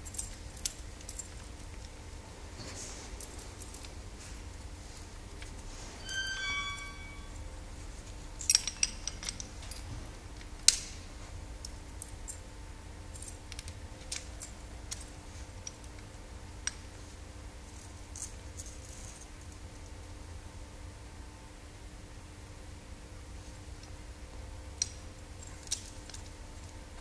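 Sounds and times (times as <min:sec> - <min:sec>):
metallic ring: 0:05.8 - 0:07.6
metal hardware clinking and clicking: 0:08.4 - 0:09.9.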